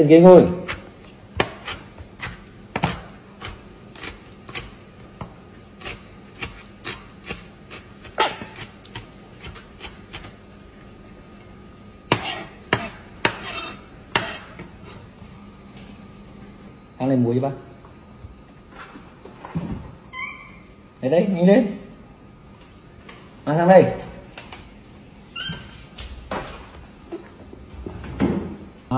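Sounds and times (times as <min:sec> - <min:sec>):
knife chopping on wooden board: 0:00.5 - 0:10.3, 0:12.1 - 0:14.6.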